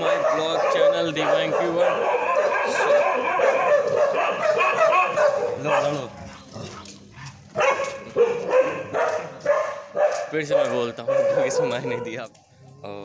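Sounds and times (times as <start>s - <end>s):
dog yelping and whimpering: 1.4s - 5.9s.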